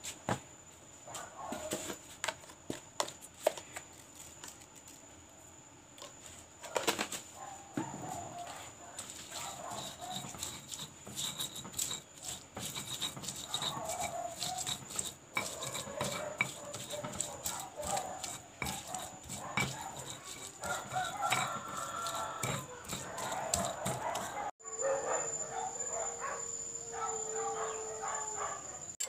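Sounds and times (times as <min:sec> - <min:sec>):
stone pestle grinding in mortar: 0:09.0 - 0:24.5.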